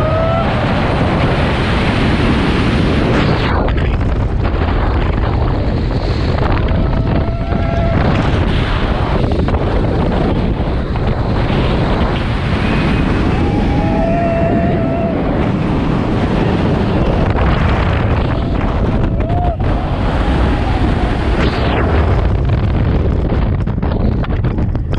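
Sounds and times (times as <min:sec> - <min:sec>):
roller coaster racing on track: 0:00.0 - 0:24.9
wind rushing over microphone: 0:00.0 - 0:24.9
riders yelling: 0:13.2 - 0:15.5.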